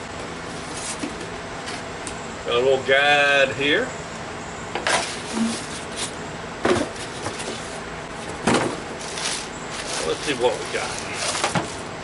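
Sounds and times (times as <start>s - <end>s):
plastic bag crinkling: 9.0s - 11.8s.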